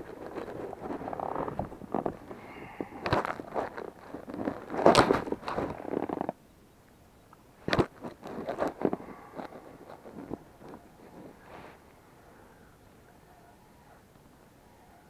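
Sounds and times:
clothing rustling: 0.0 - 6.3, 7.6 - 11.9.

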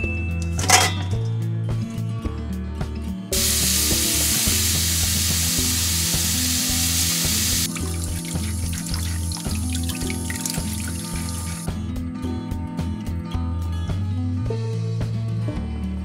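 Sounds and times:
background music with steady beat: 0.0 - 16.0
tap water running into metal bowl: 3.4 - 11.7.

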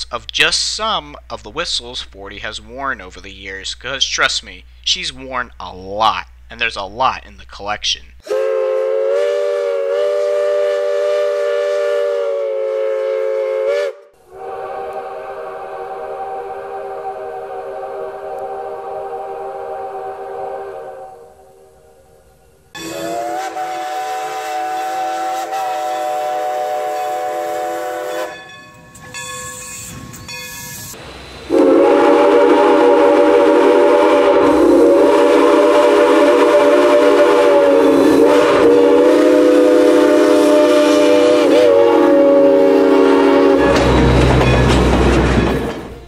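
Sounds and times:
steam locomotive chime whistle: 8.2 - 21.6, 22.7 - 46.0
loud steam whistle wavering: 8.2 - 46.0.

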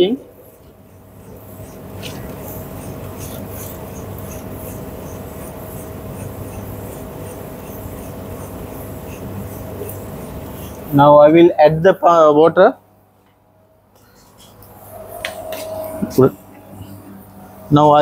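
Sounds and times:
faint pump whine: 0.0 - 18.0
tumble dryer hum: 14.5 - 18.0.

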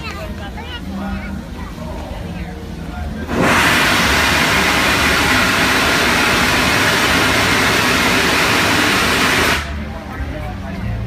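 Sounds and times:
steam hissing: 3.3 - 9.8.

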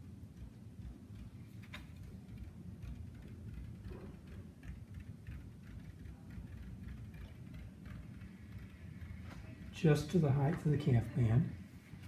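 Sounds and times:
low room hum: 0.0 - 12.0.

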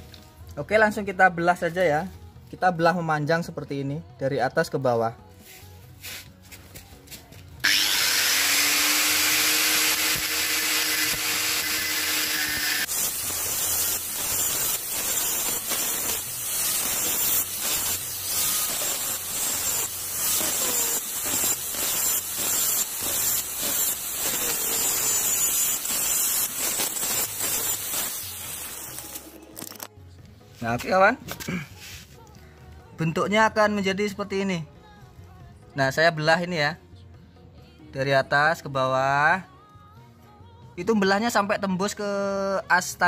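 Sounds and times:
angle grinder cutting metal: 7.6 - 29.9.

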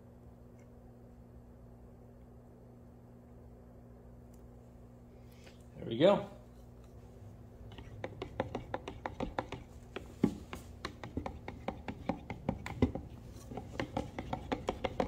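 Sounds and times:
stir stick scraping plastic cup: 7.6 - 15.0.

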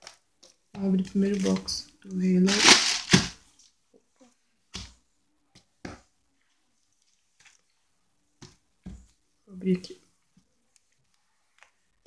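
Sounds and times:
plastic-wrapped books rustling: 0.0 - 3.8.

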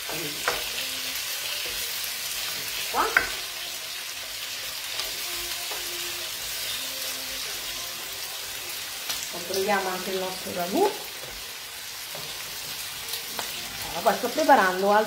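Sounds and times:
food sizzling in a wok: 0.0 - 15.0.

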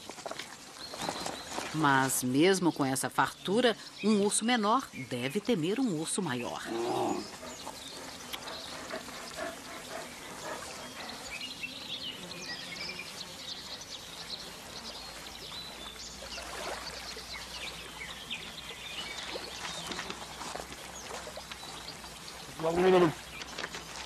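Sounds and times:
water washing over pebbles: 0.0 - 2.4, 18.4 - 24.0.

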